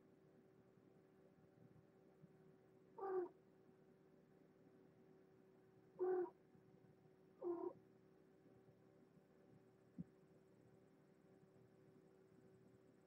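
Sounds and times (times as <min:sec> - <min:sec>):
faint background hum: 0:00.0 - 0:13.0
cat meowing: 0:03.0 - 0:03.3, 0:06.0 - 0:06.3, 0:07.4 - 0:07.7.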